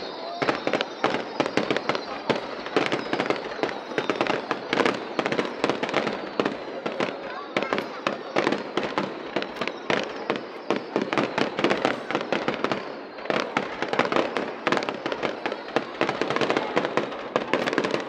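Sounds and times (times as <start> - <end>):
fireworks crackling and banging: 0.0 - 18.0.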